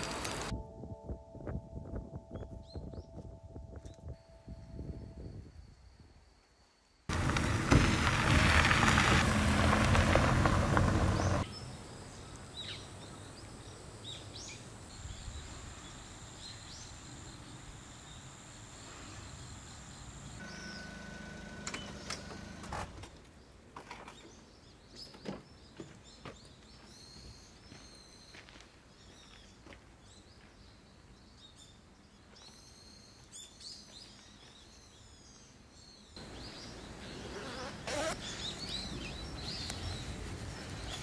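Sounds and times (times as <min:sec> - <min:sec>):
birds chirping: 0:07.1 - 0:22.6, 0:23.2 - 0:41.0.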